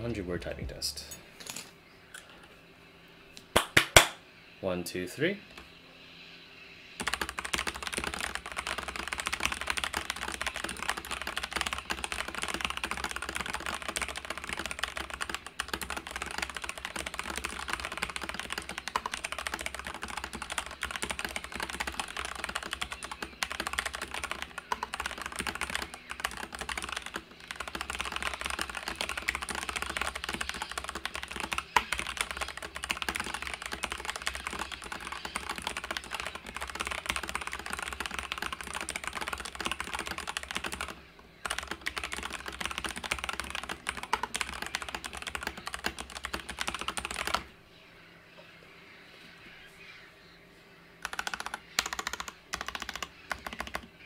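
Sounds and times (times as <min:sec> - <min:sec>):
fast mechanical keyboard typing: 0:07.0 - 0:47.5, 0:51.0 - 0:54.0.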